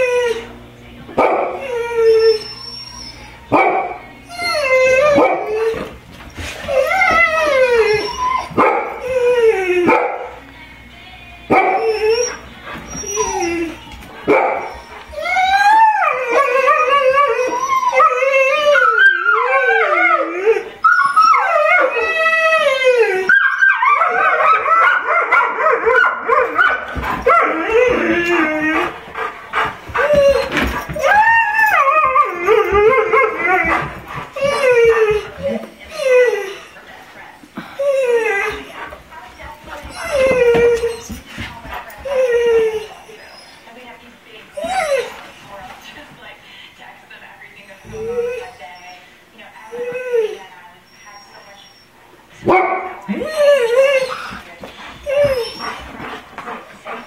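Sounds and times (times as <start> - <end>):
dogs howling: 0.0 - 0.6, 1.2 - 10.5, 11.5 - 43.8, 44.6 - 45.6, 47.7 - 49.0, 49.6 - 57.0
dogs barking: 1.1 - 1.7, 3.5 - 4.1, 5.0 - 5.8, 7.1 - 9.1, 9.8 - 10.4, 11.5 - 13.6, 14.3 - 15.0, 23.3 - 31.1, 52.4 - 53.1.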